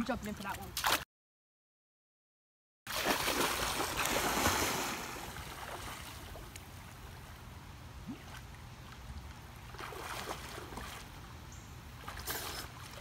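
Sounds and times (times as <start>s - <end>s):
person splashing through water: 2.9s - 6.5s, 9.7s - 11.1s.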